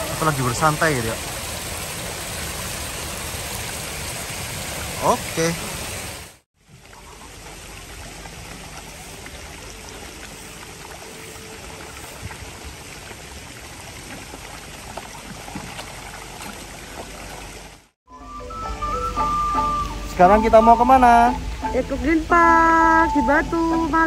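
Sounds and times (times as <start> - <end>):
running splashing water: 0.0 - 18.0.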